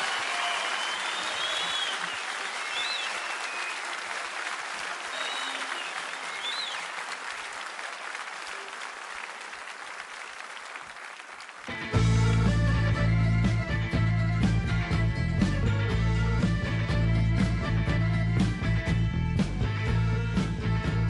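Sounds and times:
whistles from audience: 0.0s - 7.6s
audience applauding: 0.0s - 12.9s
band playing loudly: 11.7s - 21.0s.

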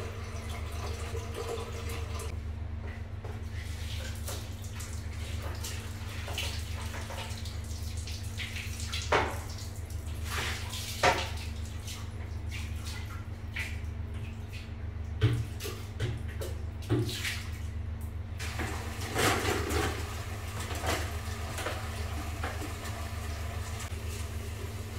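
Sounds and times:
water pouring into toilet bowl: 0.0s - 2.3s, 18.4s - 24.9s.

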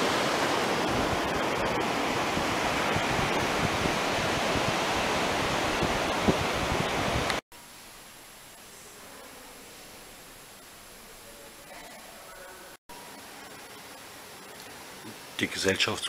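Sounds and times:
sea waves rushing: 0.0s - 7.4s
wind gusts on microphone: 0.0s - 7.4s.

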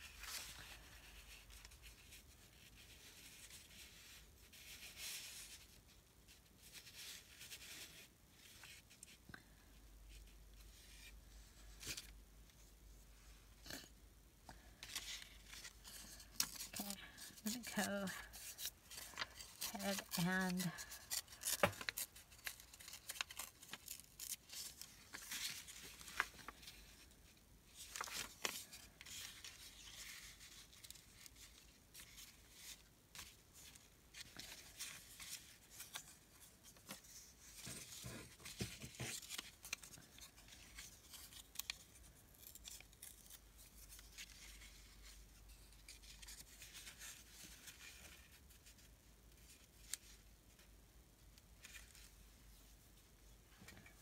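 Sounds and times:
paper rustling: 14.6s - 50.7s
scissors snipping paper: 16.4s - 24.6s.

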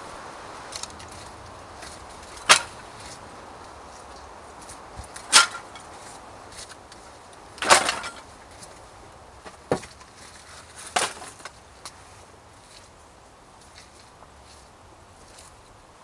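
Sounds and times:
kindling sticks clattering: 0.6s - 12.0s.

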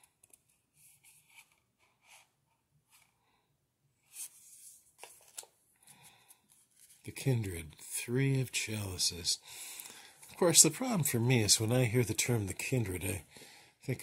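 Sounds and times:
cards rustling and sliding: 4.1s - 7.1s.

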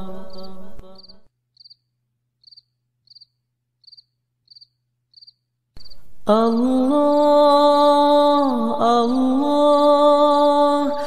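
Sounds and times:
person chanting: 0.0s - 1.3s, 6.2s - 11.0s
cricket chirping: 0.3s - 7.4s.

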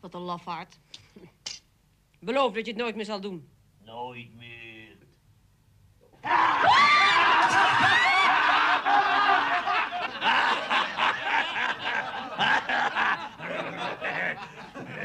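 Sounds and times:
man laughing heartily: 7.4s - 15.0s.

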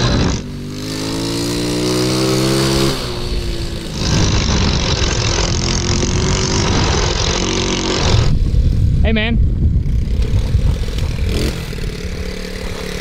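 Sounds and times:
mini bike engine accelerating: 0.0s - 8.8s, 9.8s - 13.0s
wind rushing on microphone: 2.8s - 13.0s.

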